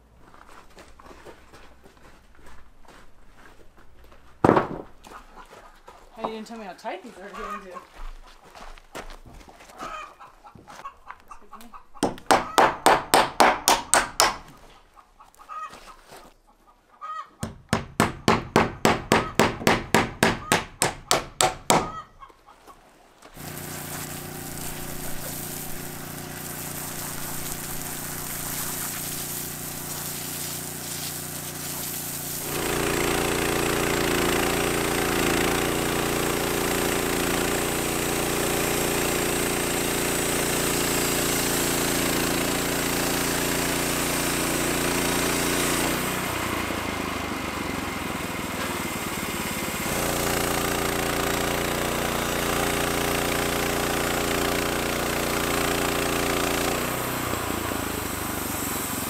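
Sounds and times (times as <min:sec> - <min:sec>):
loud rapid repeated strokes: 0:23.4 - 0:43.3
small engine running: 0:23.4 - 0:59.0.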